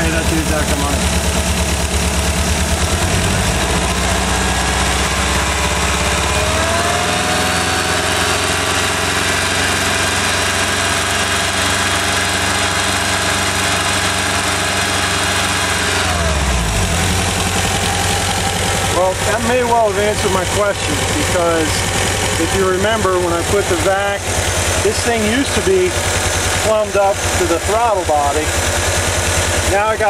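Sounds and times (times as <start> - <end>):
car engine idling and revving: 0.0 - 30.0.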